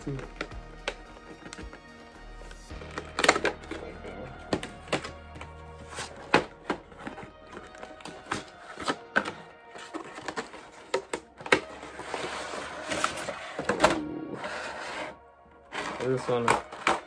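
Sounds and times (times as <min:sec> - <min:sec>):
background music: 0:00.0 - 0:17.0
cardboard scraping rustle: 0:05.8 - 0:17.0.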